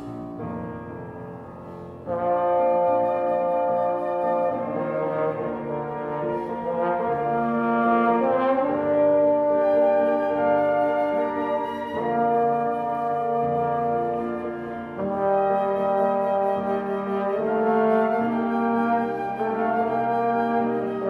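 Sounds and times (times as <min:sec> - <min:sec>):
slow instrumental music with held chords: 0:00.0 - 0:02.6.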